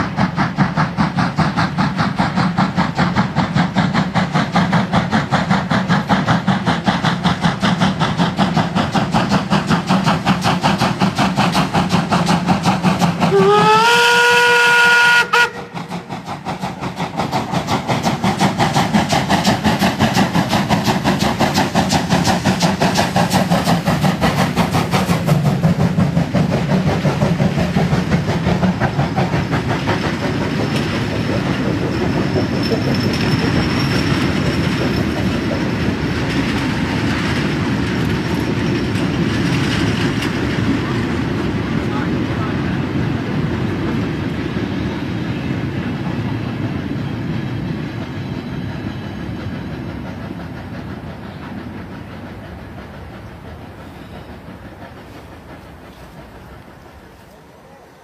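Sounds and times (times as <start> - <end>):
steam locomotive chuffing: 0.0 - 58.0
steam whistle: 13.3 - 15.8
wheels clicking over rail joints: 15.7 - 42.0.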